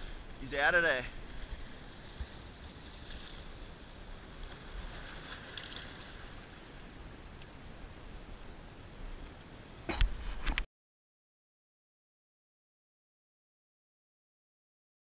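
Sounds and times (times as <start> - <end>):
wind rumble on microphone: 0.0 - 10.6.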